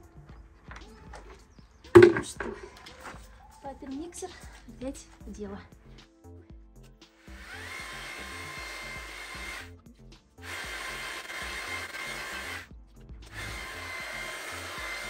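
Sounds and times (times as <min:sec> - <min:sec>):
electric paddle mixer whining: 0:07.2 - 0:09.7, 0:10.4 - 0:12.7, 0:13.3 - 0:15.0.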